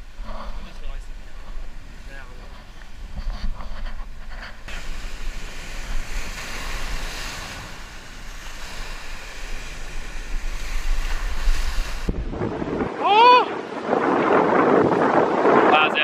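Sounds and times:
wind rumbling on microphone: 0.0s - 16.0s
ocean surf washing over rocks: 4.6s - 16.0s.

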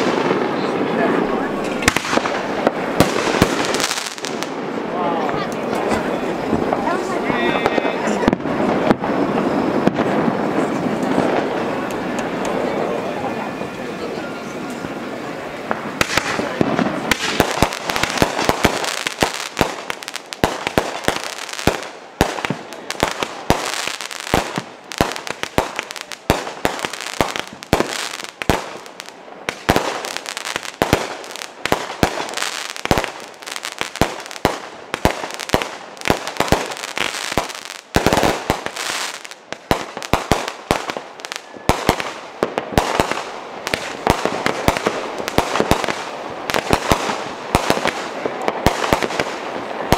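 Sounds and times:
fireworks bangs: 0.0s - 49.9s
hissing crackle: 14.4s - 49.9s.

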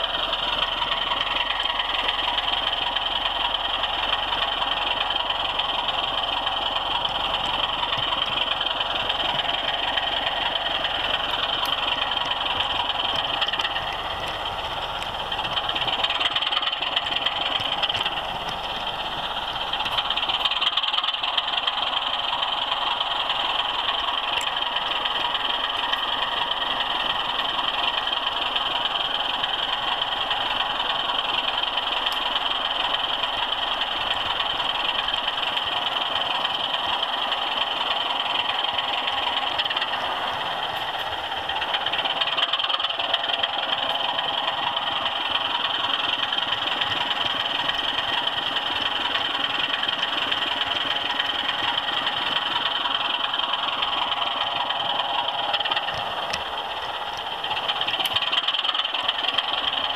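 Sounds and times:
model train wheels rattling: 0.0s - 59.9s.

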